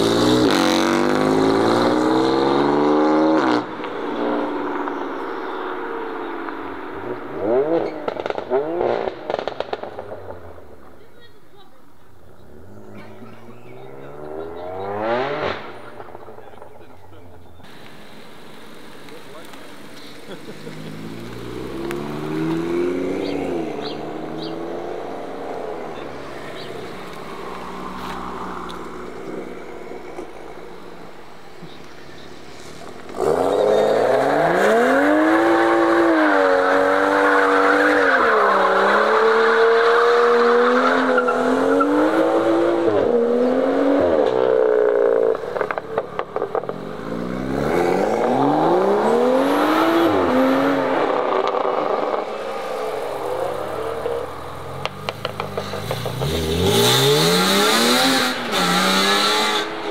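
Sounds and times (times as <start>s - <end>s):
hard engine revving: 0.0s - 4.4s, 17.7s - 30.8s, 32.5s - 59.9s
car engines accelerating: 0.0s - 59.9s
exhaust pops crackling: 7.6s - 11.3s, 15.4s - 34.7s, 44.2s - 49.1s, 49.7s - 59.9s.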